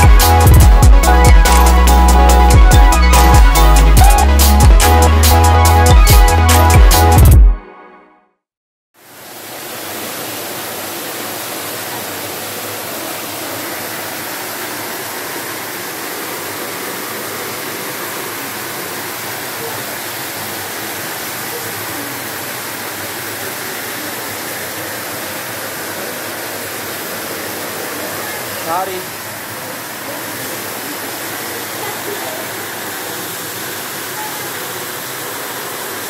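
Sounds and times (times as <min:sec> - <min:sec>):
whirlpool jets bubbling: 0:09.0 - 0:36.0
water pouring into pool: 0:09.1 - 0:36.0.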